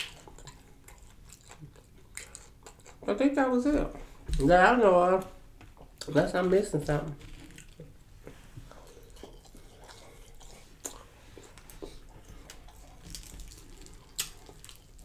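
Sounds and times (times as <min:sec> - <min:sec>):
wet mouth sounds: 0:00.0 - 0:03.1, 0:08.8 - 0:15.0
faint chewing: 0:00.0 - 0:04.5, 0:07.0 - 0:15.0.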